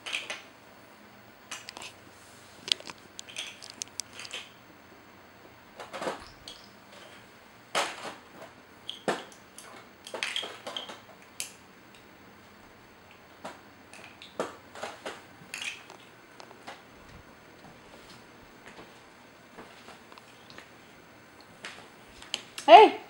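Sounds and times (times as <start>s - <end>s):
plastic toys clattering: 0.0s - 0.4s, 2.6s - 4.5s, 5.8s - 8.3s, 8.9s - 11.1s, 13.9s - 16.8s.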